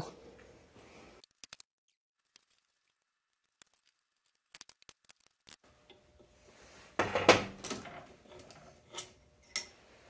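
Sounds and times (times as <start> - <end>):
metal clanking and scraping: 7.0 - 9.8.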